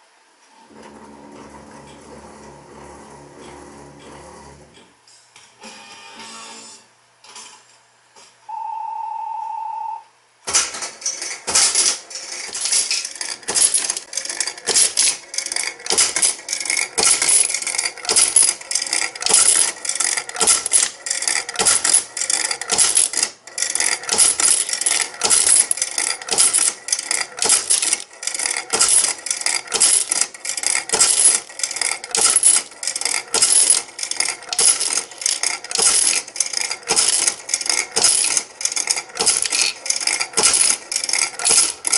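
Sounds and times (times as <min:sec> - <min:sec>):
steady beep: 0:08.5 - 0:10.0
coins clattering into payout tray: 0:10.5 - 0:41.9.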